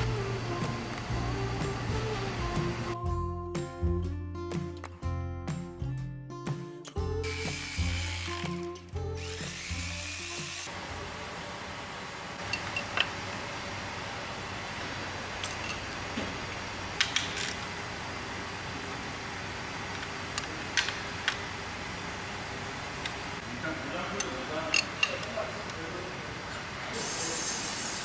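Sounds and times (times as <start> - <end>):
background music: 0.0 - 10.7
hand tools clicking and clacking: 24.2 - 25.8.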